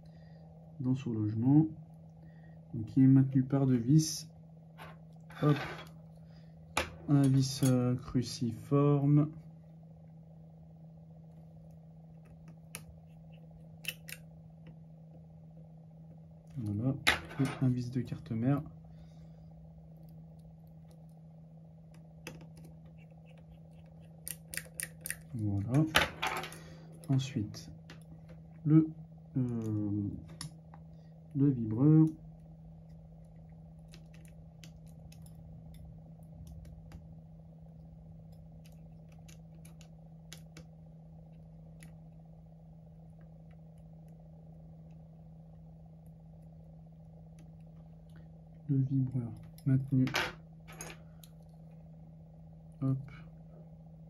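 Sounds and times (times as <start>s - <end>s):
faint steady hum: 0.0s - 54.0s.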